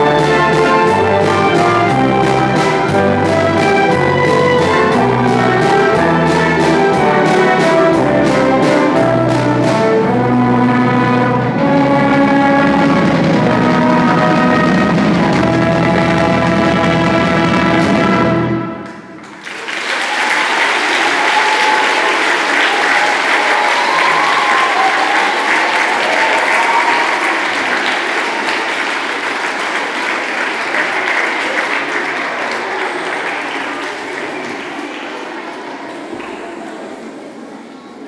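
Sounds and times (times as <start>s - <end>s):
audience applause: 19.2s - 37.0s.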